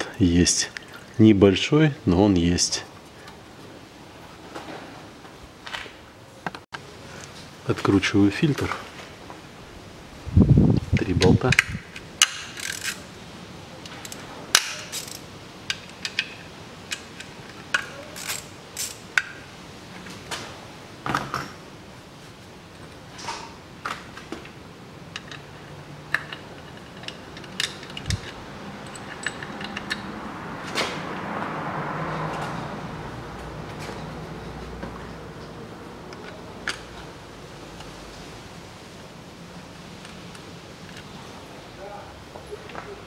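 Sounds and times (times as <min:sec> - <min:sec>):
hand ratchet clicking: 0:11.6 - 0:13.0, 0:14.0 - 0:16.3, 0:26.1 - 0:30.1.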